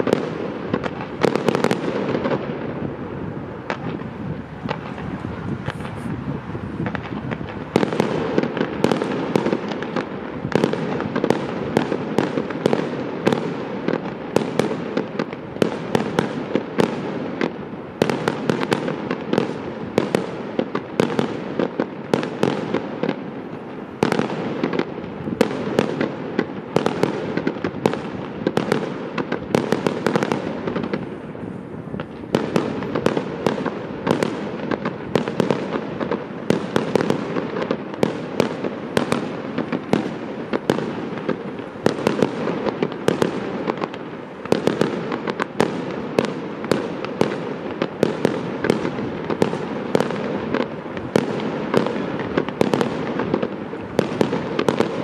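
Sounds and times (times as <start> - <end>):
continuous noisy din: 0.0 - 8.8
fireworks bangs and cracks: 0.0 - 55.0.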